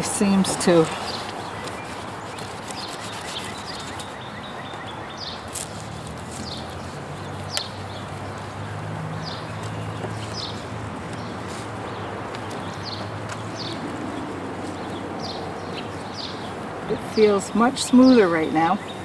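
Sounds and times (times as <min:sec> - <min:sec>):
scratchy rubbing on plastic: 0:00.0 - 0:04.2, 0:05.4 - 0:07.4
birds chirping: 0:00.0 - 0:19.0.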